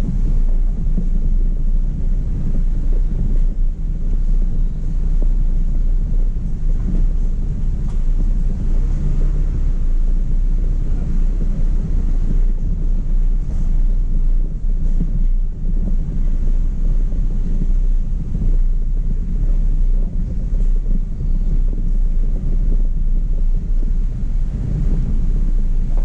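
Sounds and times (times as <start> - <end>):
truck engine rumbling: 0.0 - 26.0
wind buffeting microphone: 0.0 - 26.0.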